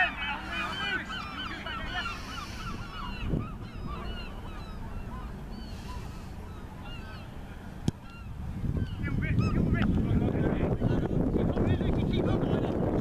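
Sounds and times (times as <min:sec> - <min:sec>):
flock of birds calling: 0:00.0 - 0:09.9.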